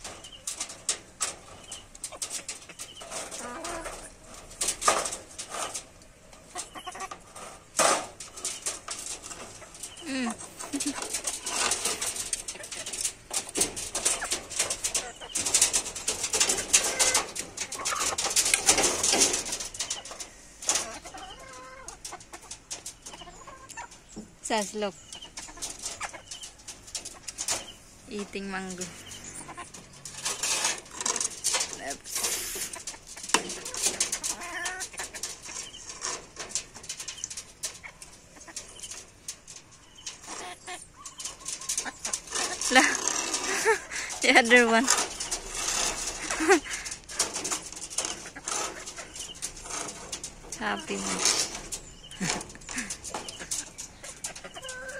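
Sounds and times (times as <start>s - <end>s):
hens pecking on wire mesh: 0.0s - 54.9s
chicken clucking call: 6.4s - 7.3s, 20.8s - 22.5s, 52.1s - 54.9s.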